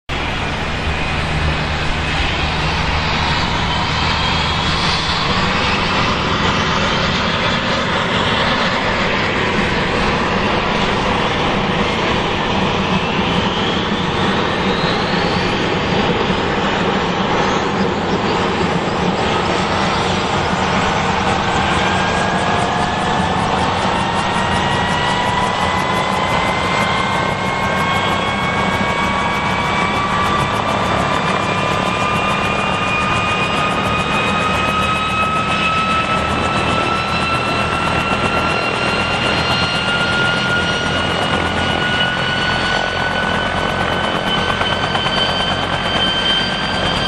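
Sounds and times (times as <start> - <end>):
helicopter engines and rotor: 0.0 - 47.0
turbine whine rising in pitch: 0.1 - 47.0.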